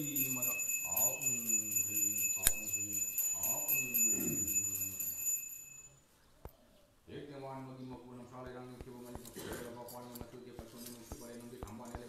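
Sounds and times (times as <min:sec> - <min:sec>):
small bell ringing rapidly: 0:00.0 - 0:06.0.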